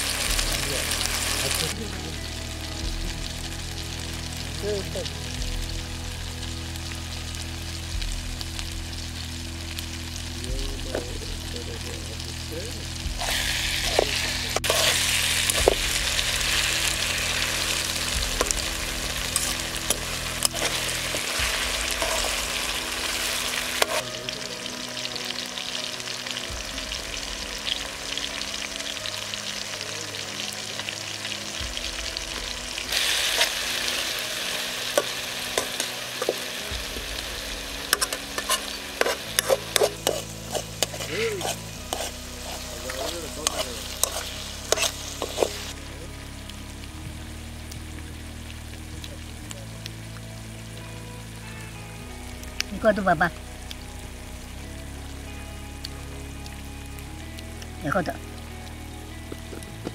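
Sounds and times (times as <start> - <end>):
curry sizzling in a metal pan: 0.0 - 59.9
spoon scraping and tapping a pan: 35.0 - 36.4, 37.9 - 42.6, 43.4 - 45.6.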